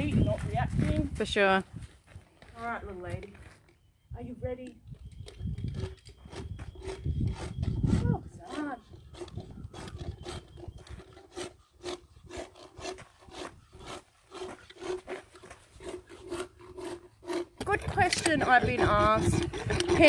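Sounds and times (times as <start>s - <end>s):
rasp filing horse teeth: 5.0s - 20.0s.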